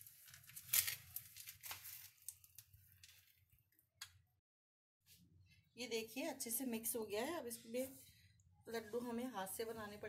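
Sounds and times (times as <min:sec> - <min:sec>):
crumbly mix rustling: 0:00.0 - 0:03.3.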